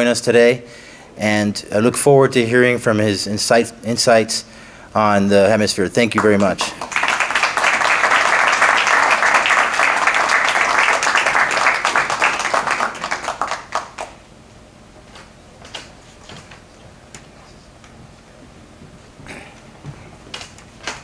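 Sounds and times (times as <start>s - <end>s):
audience applauding: 6.2s - 14.3s.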